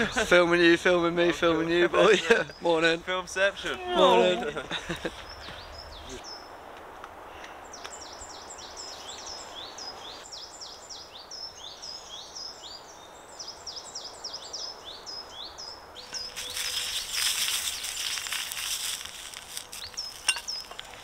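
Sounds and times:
small birds chirping: 4.8 - 6.6, 7.3 - 21.0
hissing rustle: 16.0 - 21.0.

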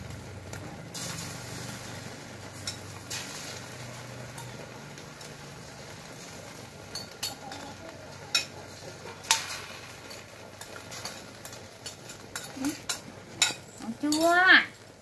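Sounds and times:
egg sizzling in a wok: 0.0 - 15.0
metal spoon clinking on pan: 2.6 - 3.2, 4.3 - 4.6, 6.8 - 14.4.

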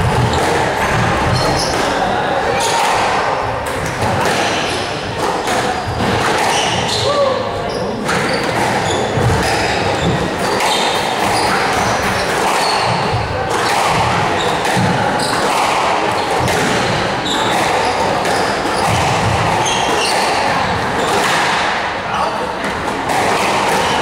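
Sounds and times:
squash ball knocks: 8.0 - 21.8.

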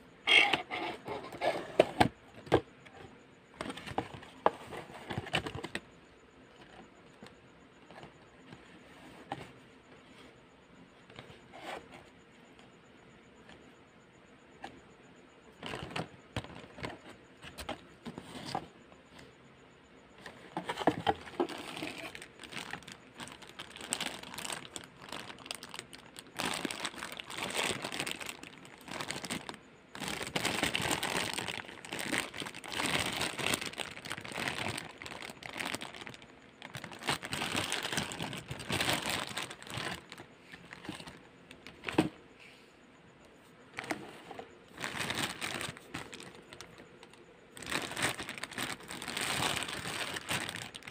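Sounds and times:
plastic bags crinkling: 15.6 - 17.8, 20.4 - 42.1, 43.8 - 50.9.

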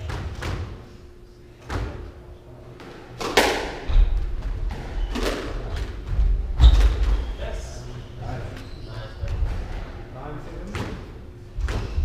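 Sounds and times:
squash ball cracking off walls: 3.2 - 5.9.

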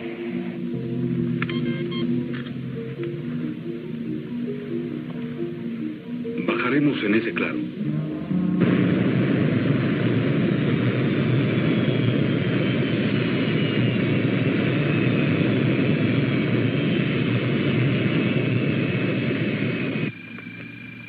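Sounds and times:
high whine falling in pitch: 7.6 - 21.0
rushing rocket engine: 8.6 - 20.1.

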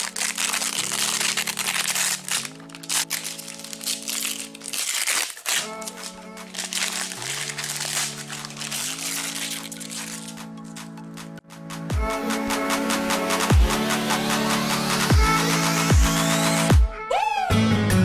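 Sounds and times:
plastic film crinkling: 0.0 - 11.0
background music chords: 0.0 - 17.0.

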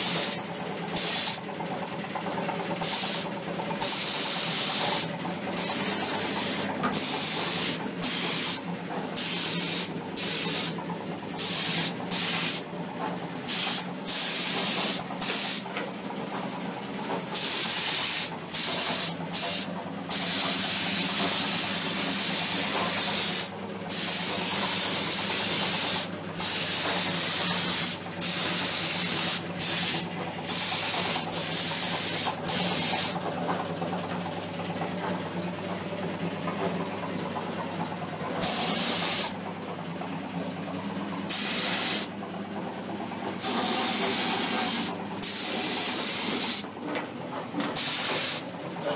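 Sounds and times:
paint spray gun hissing: 0.0 - 1.4, 2.8 - 8.6, 9.2 - 12.7, 13.4 - 15.6, 17.2 - 33.2, 38.3 - 39.4, 41.2 - 42.1, 42.9 - 46.7, 47.7 - 48.5.

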